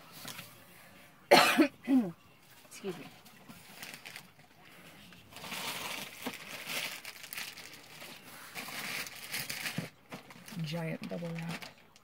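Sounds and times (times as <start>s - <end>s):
packing material crinkling: 3.5s - 12.0s.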